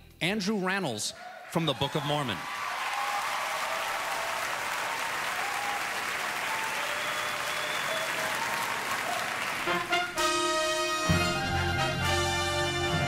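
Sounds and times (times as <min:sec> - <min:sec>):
audience applauding: 0:01.2 - 0:13.0
stage musical accompaniment: 0:06.8 - 0:13.0.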